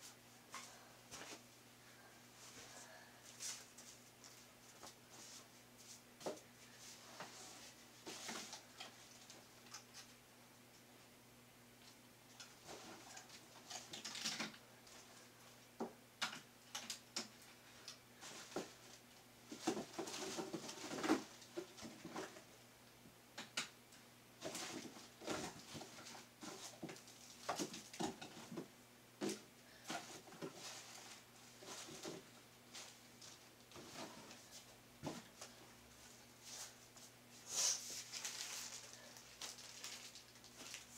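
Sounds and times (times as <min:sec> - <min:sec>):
clicks crackles and rustles: 0:11.8 - 0:15.0, 0:16.2 - 0:22.4, 0:38.0 - 0:40.9.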